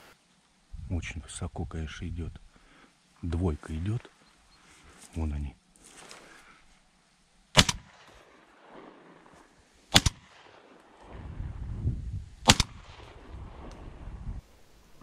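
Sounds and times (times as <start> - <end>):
shotgun shots: 7.5 - 9.3, 9.9 - 11.3, 12.4 - 13.9.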